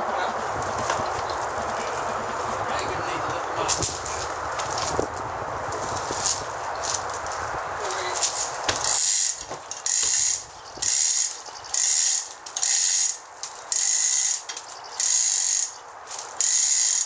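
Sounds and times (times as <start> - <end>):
ratchet wrench clicking: 8.8 - 17.0.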